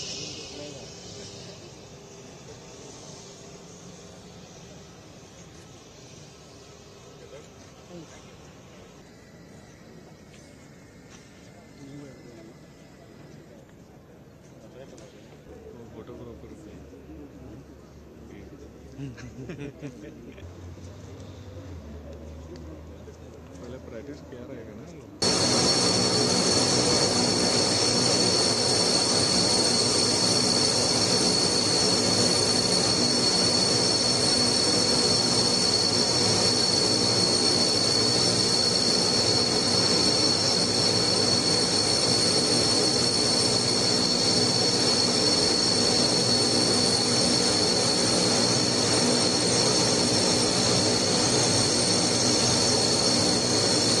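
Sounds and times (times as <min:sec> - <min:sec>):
broad rushing noise: 0:00.0 - 0:03.1, 0:25.2 - 0:54.0
turboprop engines whining: 0:00.0 - 0:11.0, 0:25.2 - 0:54.0.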